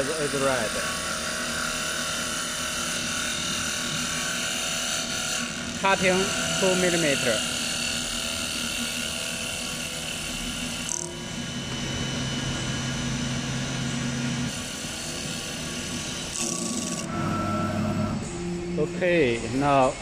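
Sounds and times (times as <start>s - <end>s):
hiss of lathe tool cutting wood: 0.0s - 11.1s
lathe motor whine: 0.0s - 20.0s.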